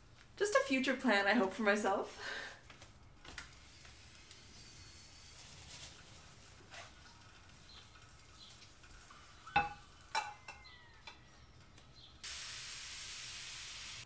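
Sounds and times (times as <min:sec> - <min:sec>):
batter sizzling in pan: 0:03.2 - 0:11.0, 0:12.1 - 0:14.0
pan and spatula clinking on plate: 0:07.0 - 0:11.3.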